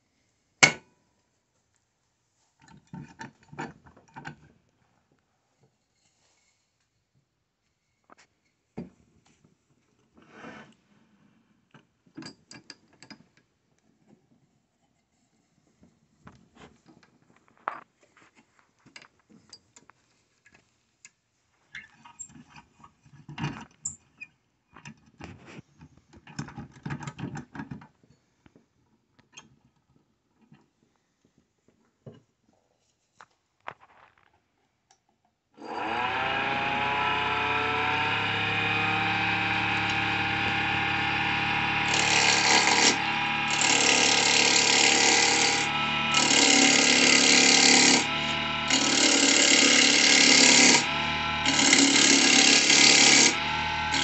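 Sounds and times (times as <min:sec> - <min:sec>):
gouge cutting spinning wood: 0:35.6 - 0:54.0
lathe motor humming: 0:35.6 - 0:54.0.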